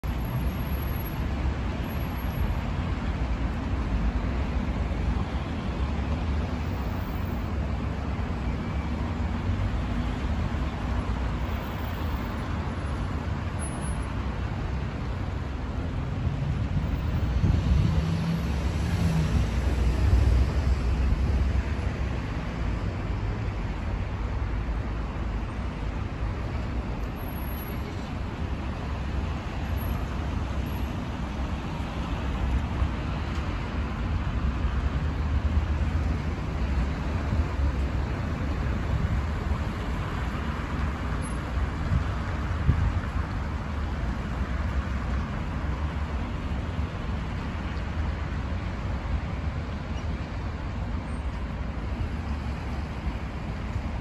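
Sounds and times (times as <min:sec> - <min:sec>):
heavy vehicle engine hum: 0:00.0 - 0:54.0
road traffic: 0:00.0 - 0:54.0.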